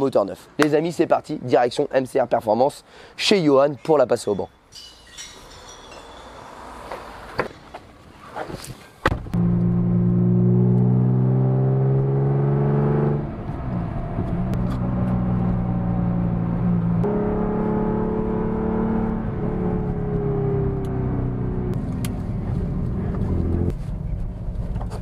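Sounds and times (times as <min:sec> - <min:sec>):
sports car engine starting and running: 0:09.2 - 0:25.0.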